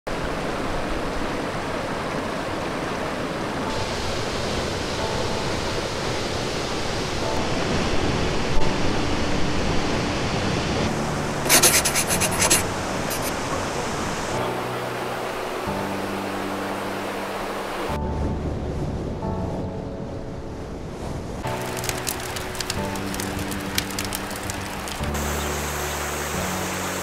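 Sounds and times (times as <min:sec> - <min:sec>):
waterfall pouring into a pool: 0:03.6 - 0:07.4, 0:21.5 - 0:27.0.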